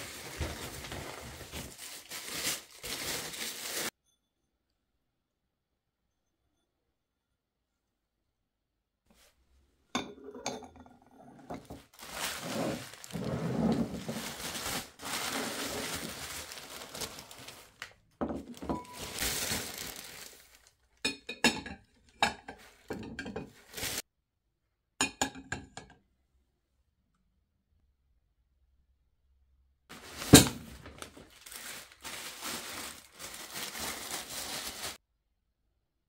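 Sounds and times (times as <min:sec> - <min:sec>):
paper wrap rustling and crinkling: 0:00.0 - 0:03.9, 0:11.6 - 0:20.8, 0:22.6 - 0:24.0, 0:29.9 - 0:35.0.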